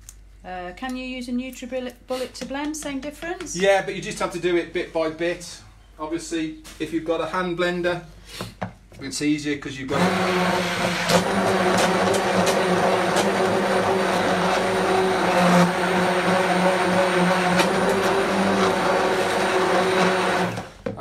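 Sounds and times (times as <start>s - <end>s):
electric hand blender running: 9.9s - 20.8s.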